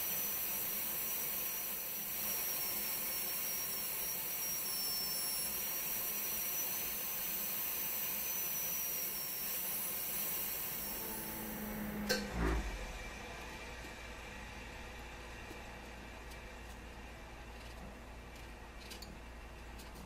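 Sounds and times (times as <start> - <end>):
dental drill whining: 0.0 - 12.2.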